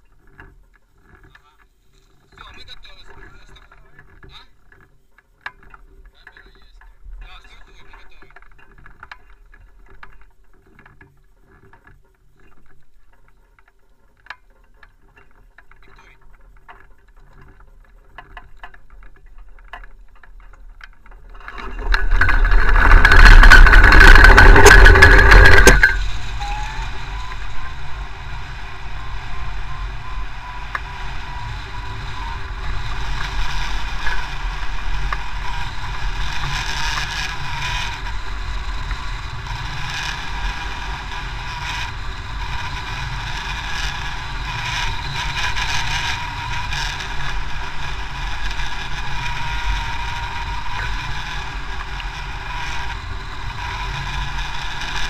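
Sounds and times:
cart rattling over grass: 0:00.0 - 0:55.0
wind on microphone: 0:21.3 - 0:55.0
tow engine drone: 0:21.4 - 0:55.0.

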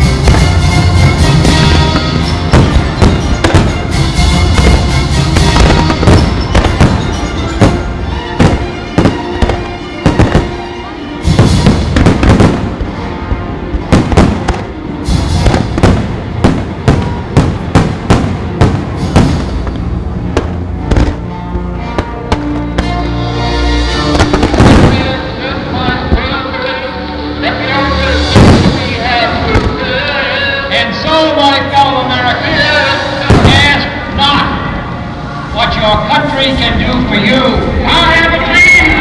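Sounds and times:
fireworks bursting and crackling: 0:00.0 - 0:21.3, 0:21.9 - 0:26.4, 0:28.2 - 0:30.7, 0:32.4 - 0:34.4
fireworks show music: 0:00.0 - 0:39.0.

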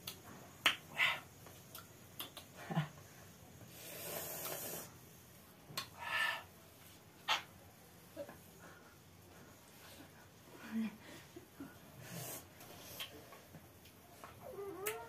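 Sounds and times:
long hiss: 0:03.6 - 0:05.2, 0:12.0 - 0:13.4.

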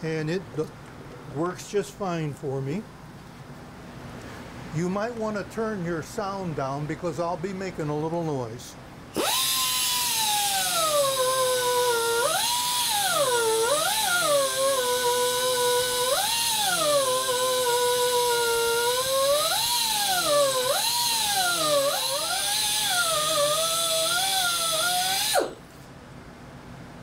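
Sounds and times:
die grinder whining carving wood: 0:09.2 - 0:25.6.

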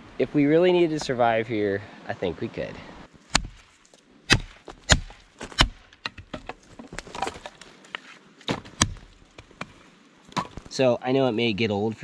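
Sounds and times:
wood splitting strikes: 0:03.3 - 0:07.6, 0:08.4 - 0:10.8.

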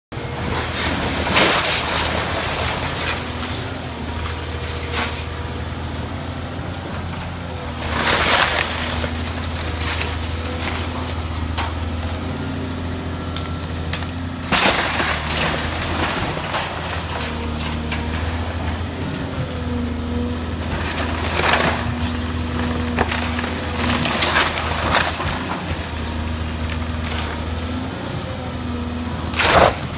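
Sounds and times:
excavator diesel engine running: 0:00.1 - 0:29.9
house debris crashing: 0:00.4 - 0:05.5, 0:06.4 - 0:13.0, 0:13.6 - 0:27.8
timber splintering and cracking: 0:06.1 - 0:27.8, 0:29.3 - 0:29.9.

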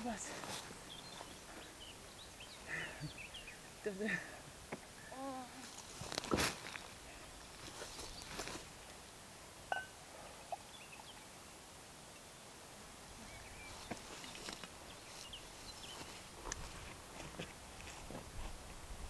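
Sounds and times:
short ringing clink: 0:09.7 - 0:10.0
faint bird chirps: 0:13.2 - 0:16.2.

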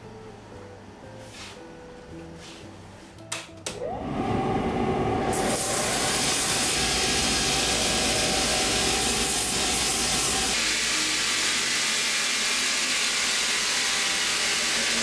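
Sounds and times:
machine whirring: 0:03.8 - 0:10.7.

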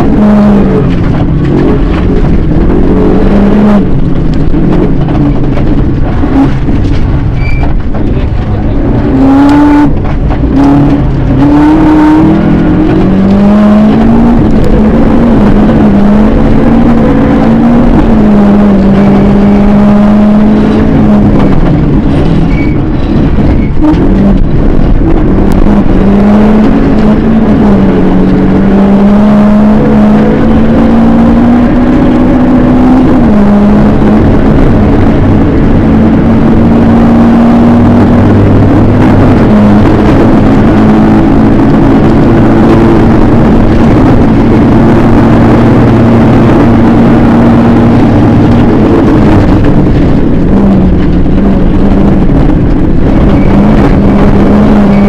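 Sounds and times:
gravel road noise: 0:00.0 - 0:55.0
rally car engine at high revs: 0:00.0 - 0:55.0.

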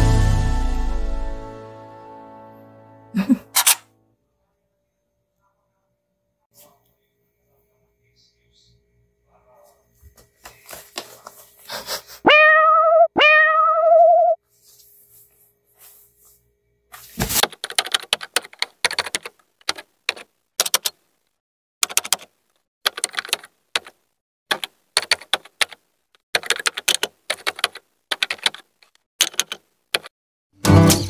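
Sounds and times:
keyboard key clicks: 0:17.5 - 0:21.0, 0:21.8 - 0:22.3, 0:29.2 - 0:30.1.

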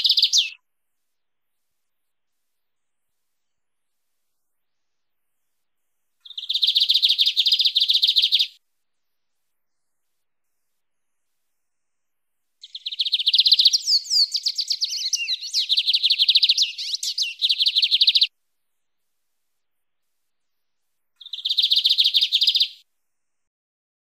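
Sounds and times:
bird singing buzzy trills: 0:00.0 - 0:00.6, 0:06.2 - 0:08.6, 0:12.6 - 0:18.3.

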